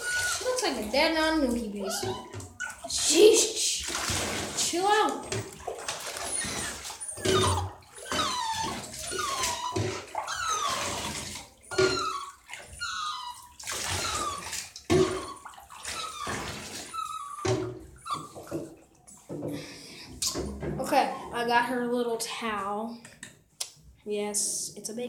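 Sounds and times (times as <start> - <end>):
puppy whining and whimpering: 0.0 - 1.0, 1.6 - 2.9, 5.2 - 18.6
water splashing: 0.0 - 19.3.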